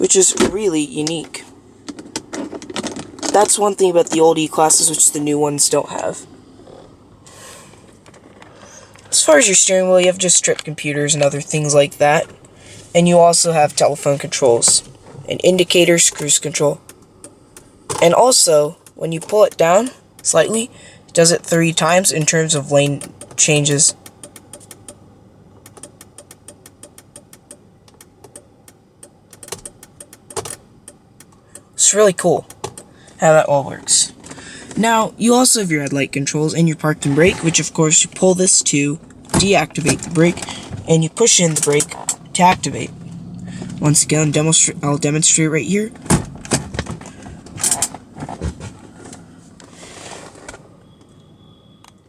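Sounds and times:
parking brake clicks: 7.7s - 33.2s, 37.3s - 49.7s
turn signal ticking: 13.4s - 33.0s, 37.9s - 46.4s.

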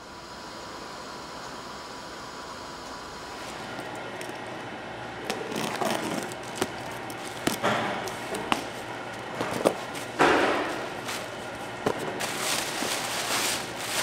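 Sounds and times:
steady hum: 0.0s - 14.0s
packing tape tearing: 5.2s - 8.7s, 11.9s - 14.0s
cardboard flaps rustling: 11.0s - 14.0s.

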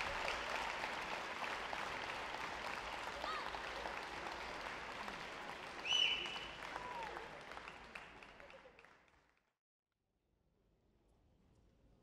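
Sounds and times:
audience applauding: 0.0s - 9.5s
loud whistle from crowd: 5.8s - 6.7s.

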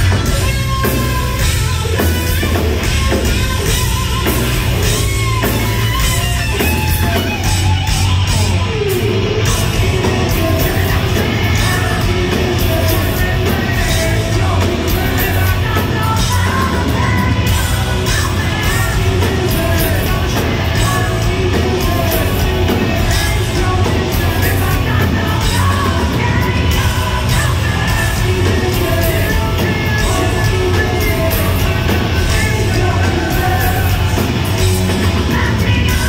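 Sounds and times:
bass guitar: 0.0s - 36.0s
drums: 0.0s - 36.0s
electric guitars: 0.0s - 36.0s
singer yelling vocals: 8.5s - 36.0s.

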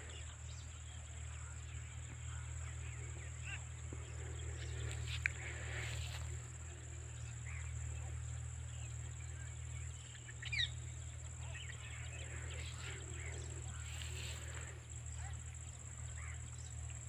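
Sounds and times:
low steady rumble: 0.0s - 17.0s
high-pitched insect drone: 2.6s - 17.0s
bird chirps: 6.8s - 17.0s.

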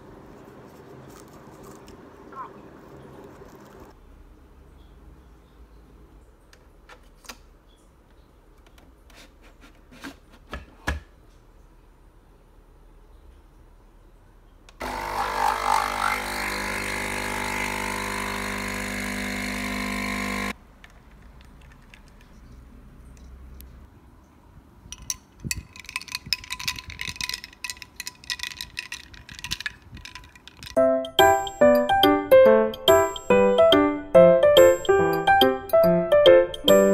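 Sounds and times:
ice cubes clinking in glass: 24.9s - 30.8s
music outro: 30.8s - 36.9s.

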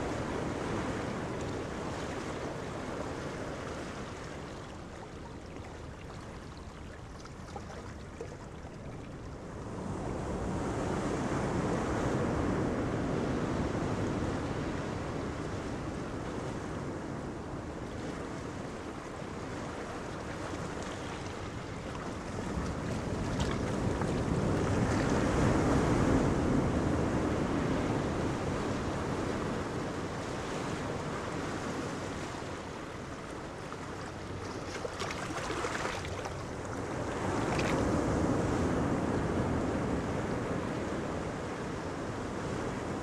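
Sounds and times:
ocean surf: 0.0s - 7.0s, 7.7s - 43.0s
wind: 0.0s - 43.0s.

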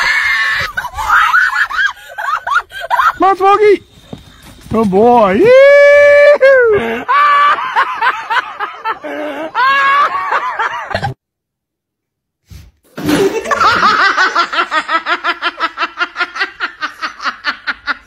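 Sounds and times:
person exclaiming excitedly: 5.2s - 6.8s
person laughing hard: 6.6s - 11.2s, 13.1s - 18.0s.

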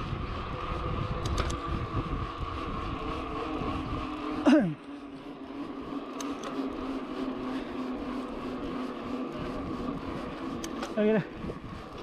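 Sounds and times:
wind on microphone: 0.0s - 4.2s, 11.3s - 12.0s
bike tyres rolling hum: 0.0s - 12.0s.

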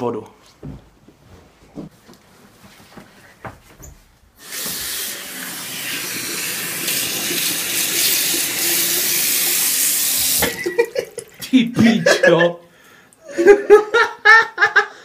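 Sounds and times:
water running from a tap: 4.4s - 11.4s
tap turned on: 4.5s - 4.9s.

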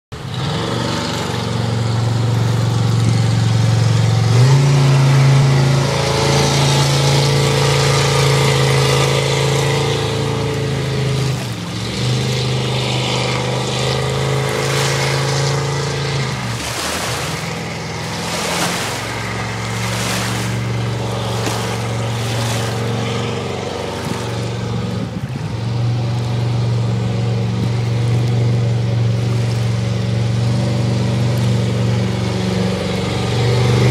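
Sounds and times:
boat engine running: 0.1s - 33.9s.

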